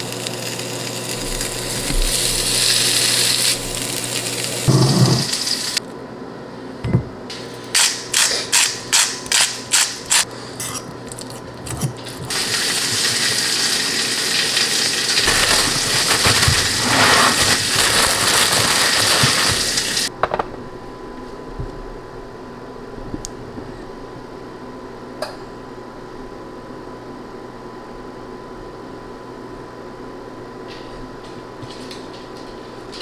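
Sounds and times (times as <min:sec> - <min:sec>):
plastic bag crinkling: 0:15.2 - 0:20.0
seasoning shaker rattling: 0:15.2 - 0:20.1.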